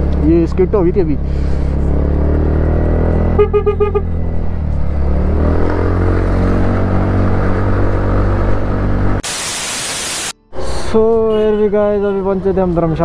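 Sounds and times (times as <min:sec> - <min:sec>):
scooter engine accelerating: 0:00.0 - 0:09.2
horn tooting: 0:03.3 - 0:04.2, 0:11.0 - 0:12.3.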